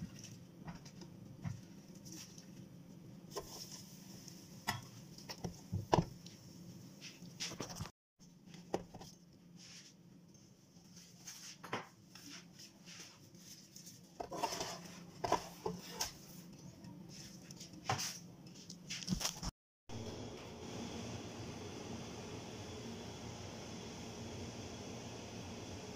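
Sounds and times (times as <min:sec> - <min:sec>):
spatula scrape: 0:03.3 - 0:04.4, 0:12.8 - 0:16.4.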